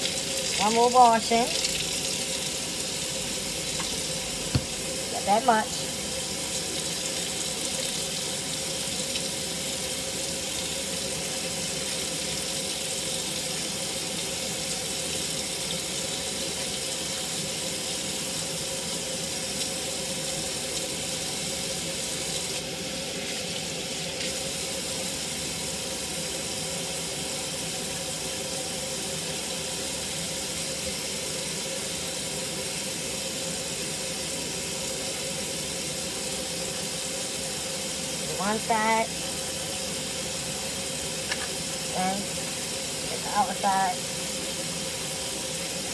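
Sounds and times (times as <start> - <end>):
tap water splashing into sink: 3.6 - 5.0, 41.2 - 41.6.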